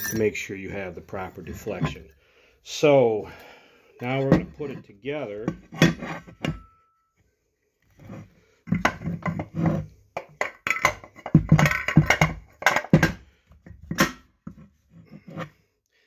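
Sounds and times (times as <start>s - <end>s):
metal clutch parts clinking and scraping: 0.0s - 0.4s.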